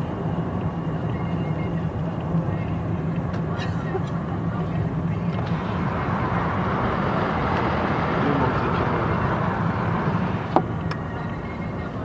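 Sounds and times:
vehicle road and engine rumble: 0.0s - 12.0s.

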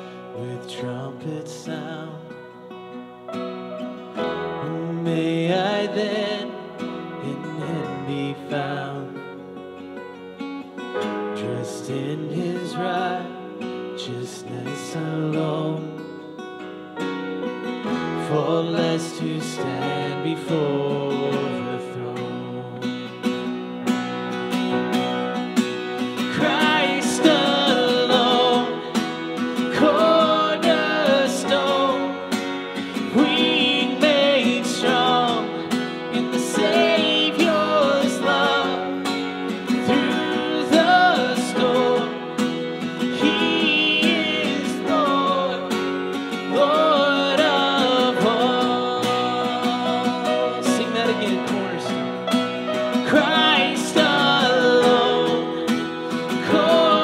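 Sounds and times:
man singing: 0.0s - 2.7s, 4.2s - 9.6s, 11.1s - 16.3s, 17.9s - 23.2s, 26.1s - 57.0s
strummed acoustic guitar: 0.0s - 57.0s
keyboard playing: 2.6s - 12.1s, 22.4s - 57.0s.

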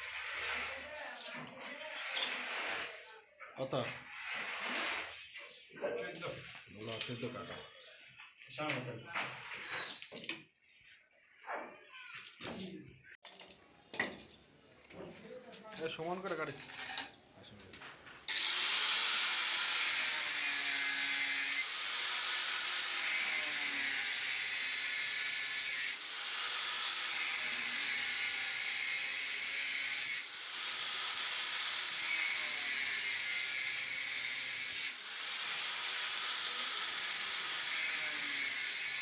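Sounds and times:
angle grinder cutting plastic pipe: 1.8s - 3.1s, 18.3s - 39.0s.

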